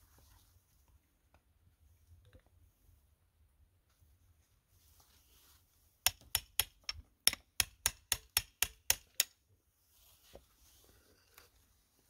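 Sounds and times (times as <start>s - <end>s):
hammer tapping chisel: 6.1s - 9.4s.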